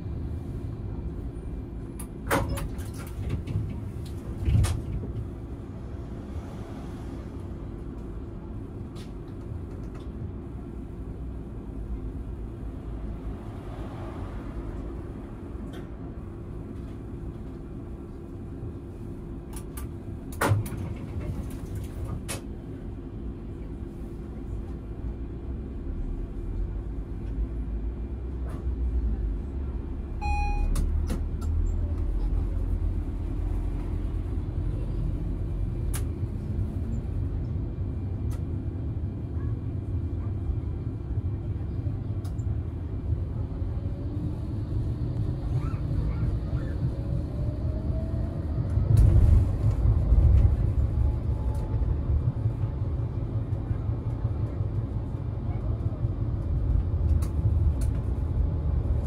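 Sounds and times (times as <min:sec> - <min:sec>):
tram rumbling on rails: 0:00.0 - 0:59.0
short beep: 0:30.2 - 0:30.8.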